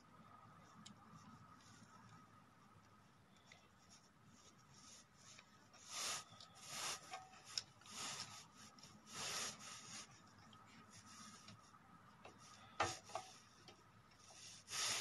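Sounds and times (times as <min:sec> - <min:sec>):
rubbing scrapes: 0:03.8 - 0:11.7, 0:14.2 - 0:15.0.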